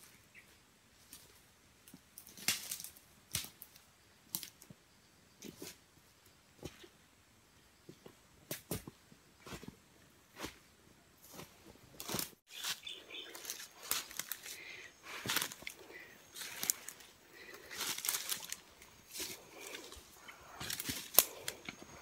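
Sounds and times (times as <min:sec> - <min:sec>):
rustling of leaves and clothing: 0:00.0 - 0:22.0
footsteps crunching through dry leaves: 0:11.2 - 0:21.4.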